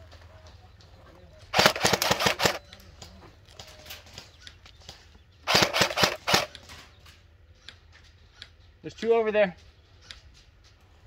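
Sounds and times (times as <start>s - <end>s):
airsoft rifle shots: 1.5s - 2.6s, 5.4s - 6.6s.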